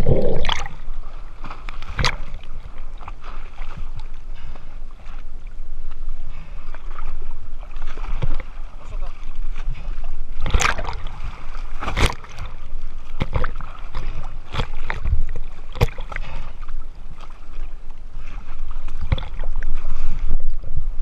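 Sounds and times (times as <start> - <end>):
steady low rumble: 0.0 - 1.4
water slapping against boat: 0.0 - 5.2, 5.8 - 21.0
water splashes: 0.0 - 21.0.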